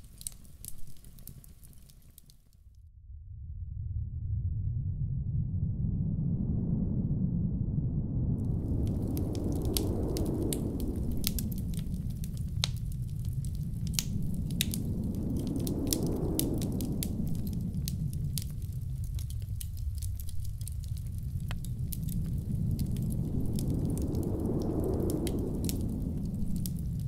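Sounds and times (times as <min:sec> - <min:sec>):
wood fire crackling and popping: 0:00.0 - 0:02.6, 0:08.4 - 0:27.0
blizzard wind rushing: 0:03.7 - 0:27.0.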